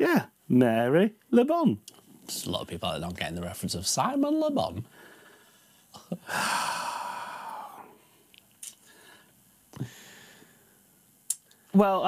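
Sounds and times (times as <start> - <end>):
man sighing: 6.0 - 8.0.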